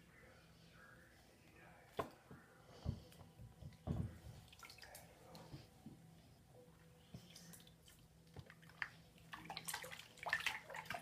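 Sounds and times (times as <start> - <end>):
water drips and splashes: 4.5 - 5.1, 8.4 - 11.0.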